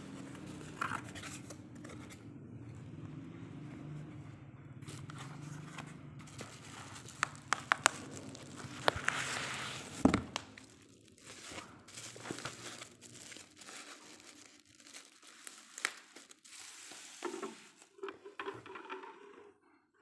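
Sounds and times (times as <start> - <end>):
bubble wrap and cardboard rustling: 0.0 - 2.2, 4.8 - 18.0.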